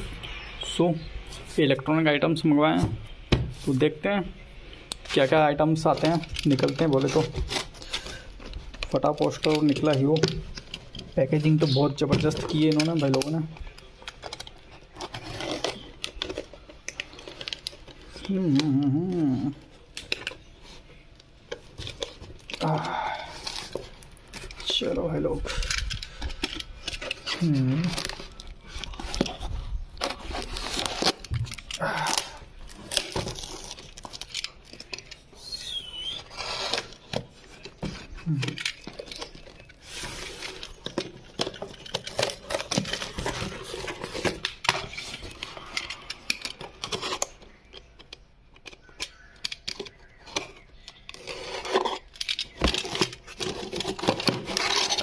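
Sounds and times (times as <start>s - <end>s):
tape ripping: 30.0s - 35.2s, 35.8s - 45.6s.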